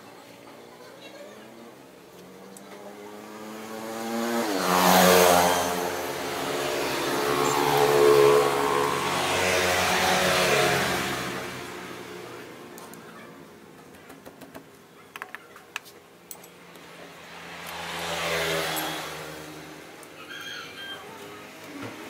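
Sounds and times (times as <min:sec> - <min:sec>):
vehicle engine passing: 0:02.2 - 0:12.8, 0:16.6 - 0:22.0.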